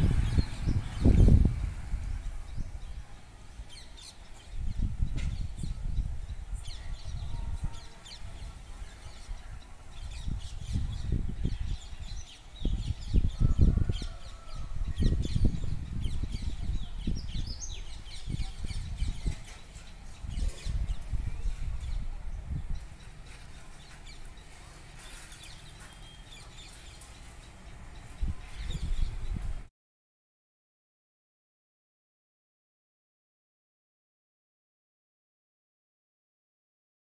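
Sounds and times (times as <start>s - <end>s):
small birds chirping: 0.0s - 29.6s
wind buffeting microphone: 0.0s - 29.7s.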